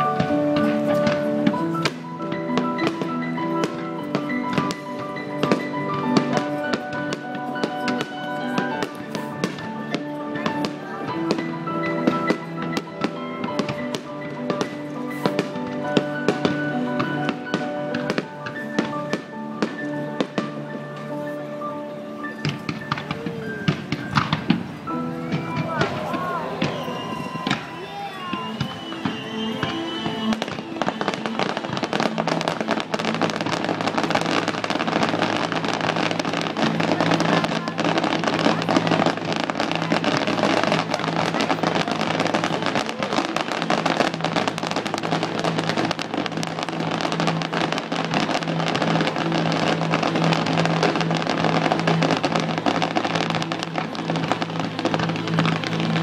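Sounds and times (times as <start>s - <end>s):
fireworks crackling and popping: 0.0s - 56.0s
music with low tones: 28.6s - 56.0s.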